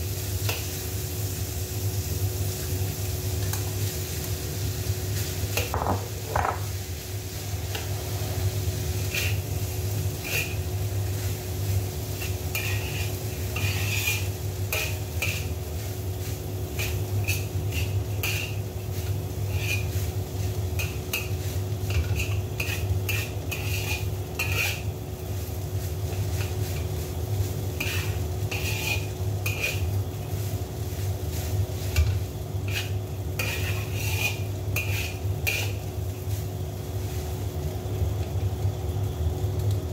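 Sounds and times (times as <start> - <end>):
metal spatula scraping a wok: 7.7 - 24.9, 26.1 - 37.3.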